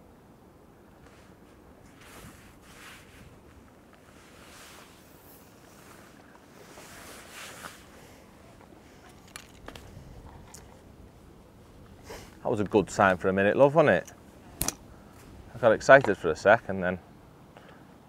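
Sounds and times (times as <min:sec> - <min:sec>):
gusts rustling bushes: 0:01.0 - 0:16.4
wind rumble on microphone: 0:06.5 - 0:13.6.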